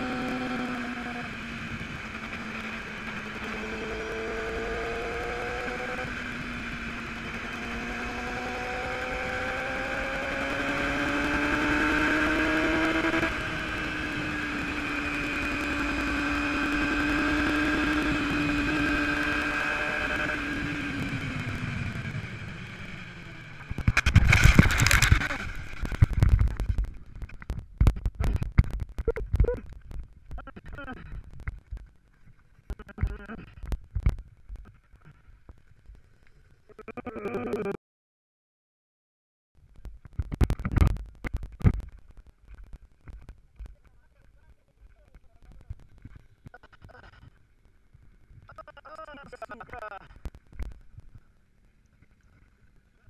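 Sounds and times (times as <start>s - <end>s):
motorcycle engine accelerating: 0.0s - 29.8s.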